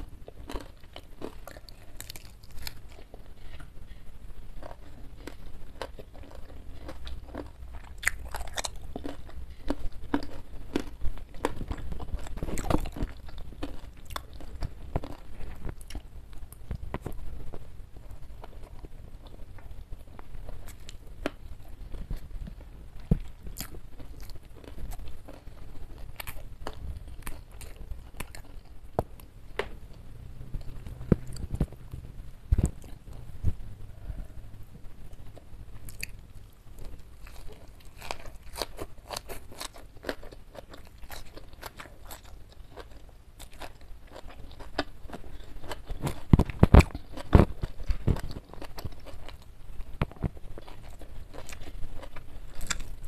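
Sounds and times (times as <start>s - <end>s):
close chewing and biting food: 0.0s - 29.3s, 35.2s - 53.0s
small clicks and crunches: 4.6s - 17.6s, 36.8s - 53.0s.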